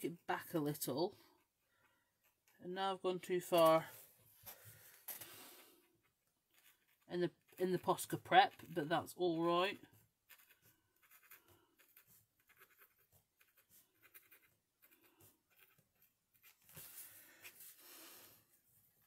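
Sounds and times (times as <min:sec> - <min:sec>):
marker pen scratching on paper: 0:04.5 - 0:17.8.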